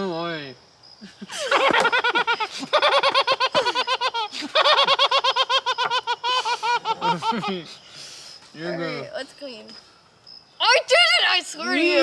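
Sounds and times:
woman laughing hard: 1.0 - 7.7
people laughing quietly: 1.0 - 8.2
gasps for breath: 7.7 - 8.5.

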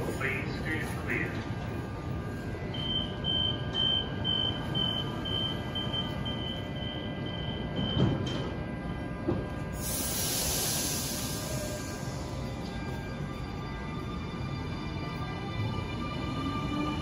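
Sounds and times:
train door warning beeps: 2.3 - 13.2.

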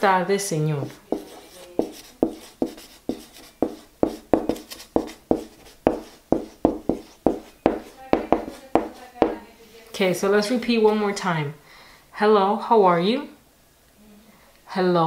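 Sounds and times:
marker writing on whiteboard: 0.8 - 9.4.

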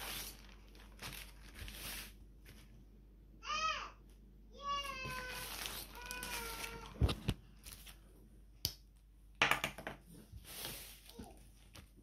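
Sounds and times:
plastic bag crinkling: 0.0 - 2.7, 5.1 - 8.0.

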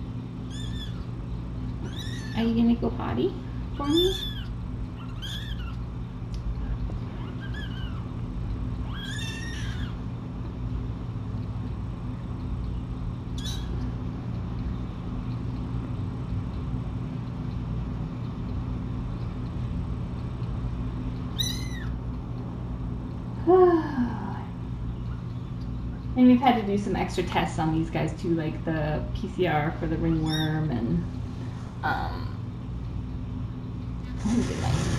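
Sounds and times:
kittens mewing: 0.5 - 1.2, 1.8 - 2.4, 3.8 - 10.1, 13.4 - 14.0, 21.3 - 22.0.

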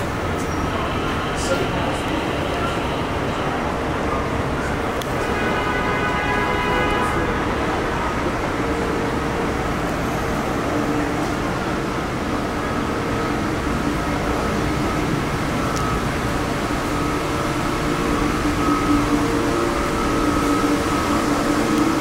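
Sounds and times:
diesel engine idling: 7.2 - 22.0.

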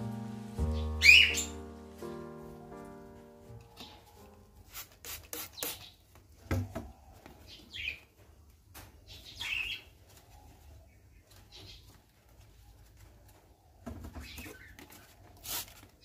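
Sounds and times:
bird chirping: 0.0 - 4.3, 7.0 - 8.2, 9.0 - 12.0
spray bottle squirting: 4.6 - 6.0, 15.4 - 16.0.

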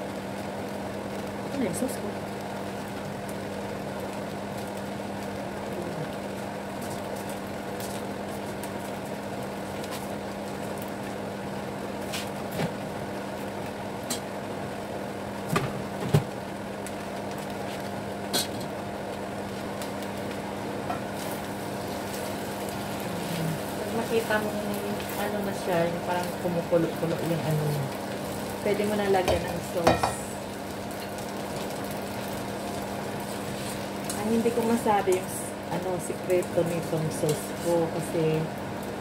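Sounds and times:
crackles and pops: 0.0 - 39.0
noodles frying in a pan: 0.0 - 39.0
steady hum: 0.0 - 39.0.

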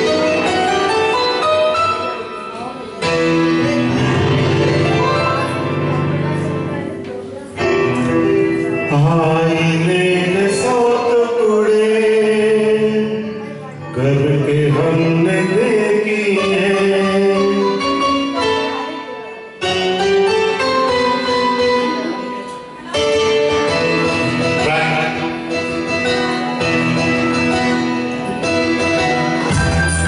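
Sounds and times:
instrumental music: 0.0 - 30.0
man singing into microphone: 7.8 - 18.6, 24.4 - 25.6.

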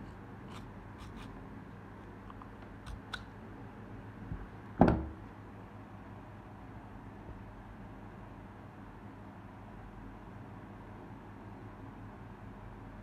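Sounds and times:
knock on wooden table: 4.8 - 5.2.

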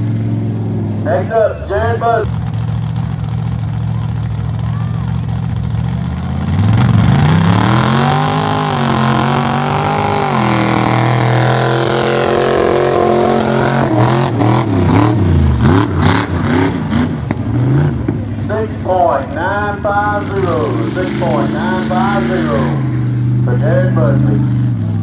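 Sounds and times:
engine revving hard: 6.4 - 18.0, 20.0 - 24.6.

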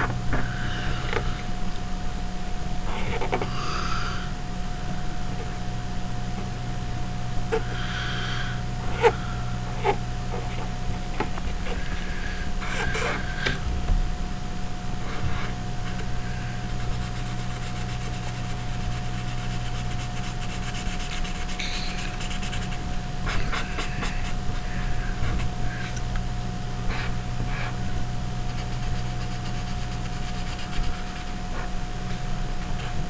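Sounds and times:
steady low hum: 0.0 - 33.0
marker scratching on paper: 16.8 - 25.5, 28.5 - 31.7
thin high tone: 21.6 - 22.3.

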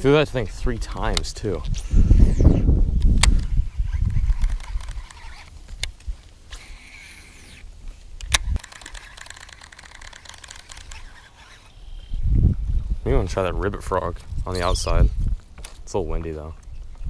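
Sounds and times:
rod and reel handling clicks: 0.8 - 12.1
fishing reel spool whir: 1.8 - 5.5, 6.5 - 7.7, 8.3 - 12.3.

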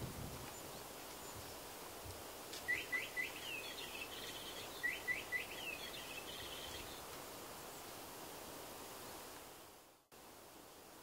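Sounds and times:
faint steady hiss: 0.0 - 11.0
songbird twittering: 2.6 - 7.1.

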